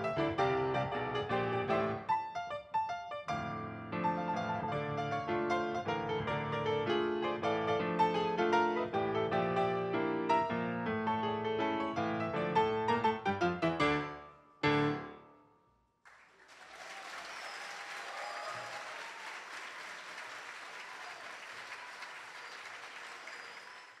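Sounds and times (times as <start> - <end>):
grand piano playing: 0.0 - 15.5
audience applauding: 16.1 - 24.0.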